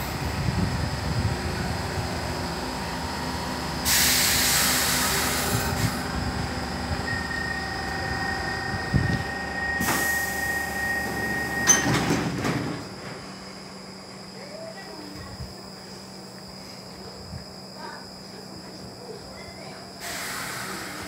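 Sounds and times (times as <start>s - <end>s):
compressed air hissing: 3.8s - 6.1s, 9.8s - 11.2s, 20.0s - 21.0s.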